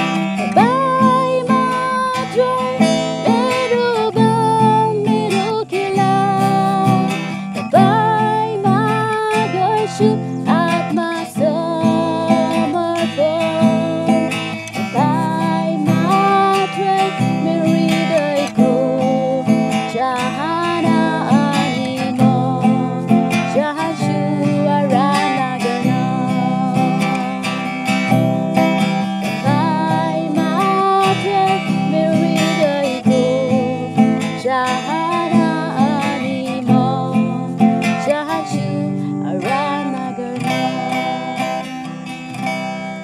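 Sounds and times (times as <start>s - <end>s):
woman singing worship song: 0.0s - 27.8s, 28.8s - 41.7s
strummed acoustic guitar: 0.0s - 43.0s.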